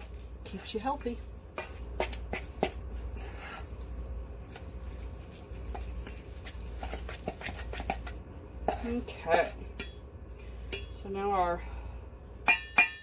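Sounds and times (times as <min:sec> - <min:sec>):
utensil scraping butter in bowl: 0:01.6 - 0:09.5.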